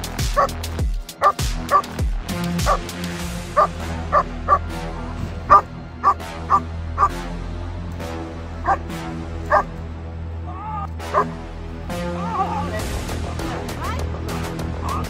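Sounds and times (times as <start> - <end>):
dog barking sharply: 5.5 - 7.1.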